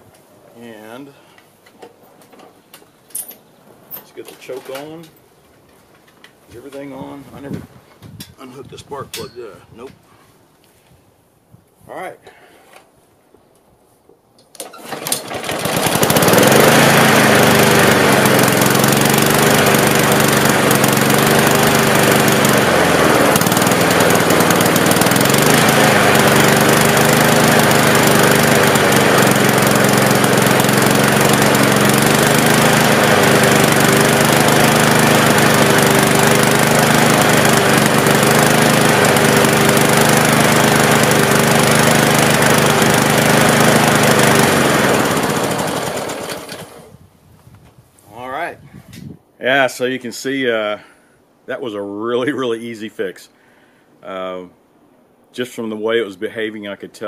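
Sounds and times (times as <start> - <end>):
lawn mower engine running: 14.5 - 47.0.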